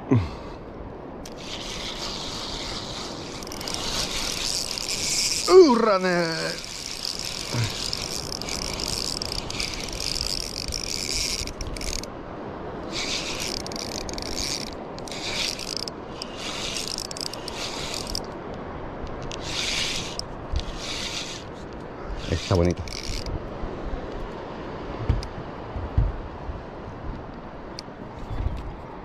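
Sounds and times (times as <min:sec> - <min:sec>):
fishing reel gears whirring: 0:01.2 - 0:12.1, 0:12.9 - 0:18.3, 0:19.2 - 0:21.5, 0:22.2 - 0:23.3.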